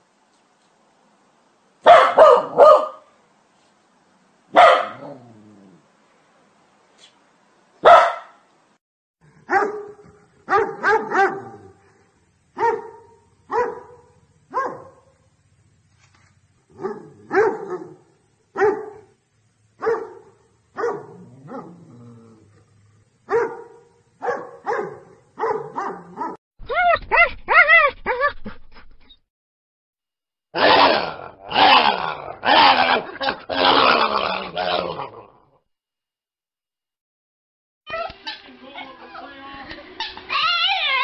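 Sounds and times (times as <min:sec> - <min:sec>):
dog barking: 0:01.8 - 0:03.1, 0:04.5 - 0:05.2, 0:07.8 - 0:08.4, 0:09.4 - 0:11.8, 0:12.6 - 0:15.1, 0:16.8 - 0:19.2, 0:19.8 - 0:21.7, 0:23.3 - 0:26.4, 0:30.6 - 0:33.4.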